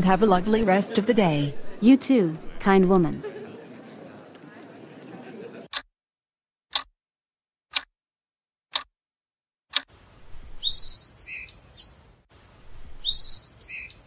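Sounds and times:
clock ticking: 0:06.7 - 0:06.9, 0:07.7 - 0:07.9, 0:08.7 - 0:08.9, 0:09.7 - 0:09.9
birds chirping and tweeting: 0:09.9 - 0:14.0.

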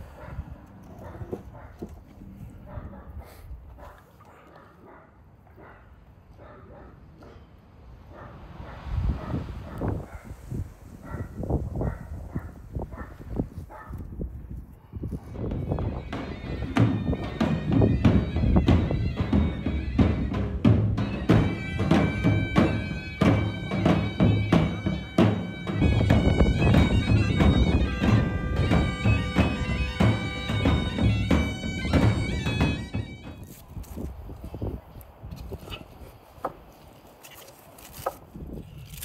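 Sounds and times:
shrill reed pipe melody: 0:15.4 - 0:33.7
drums beaten fast: 0:15.6 - 0:33.4.

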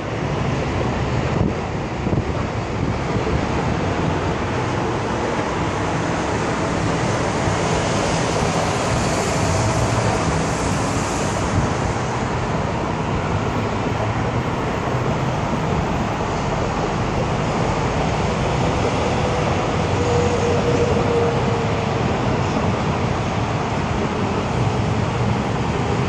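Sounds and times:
rushing water and spray: 0:00.0 - 0:20.0
motorboat engine drone: 0:00.0 - 0:26.0.

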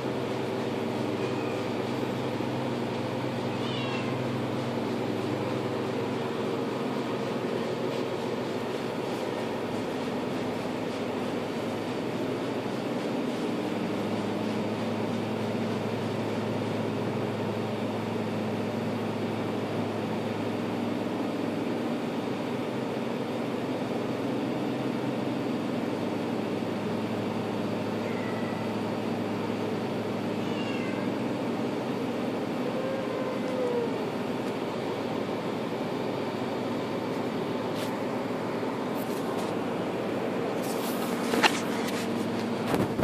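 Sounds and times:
low machine hum: 0:00.0 - 0:43.0
cat meowing: 0:01.2 - 0:01.8, 0:03.3 - 0:04.5, 0:28.0 - 0:28.8, 0:30.3 - 0:31.3, 0:32.6 - 0:34.1.

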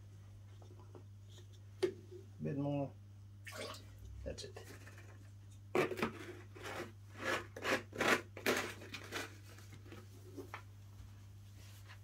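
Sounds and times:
steady low hum: 0:00.0 - 0:07.2.

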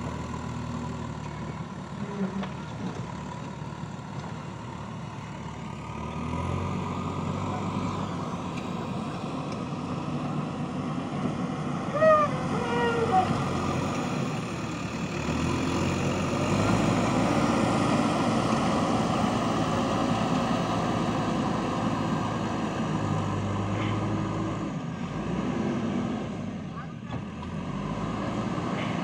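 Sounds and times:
diesel engine running: 0:00.0 - 0:29.0.

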